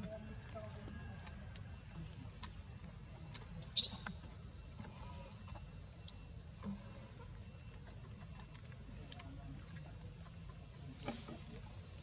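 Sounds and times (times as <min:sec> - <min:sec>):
faint outdoor background: 0:00.0 - 0:12.0.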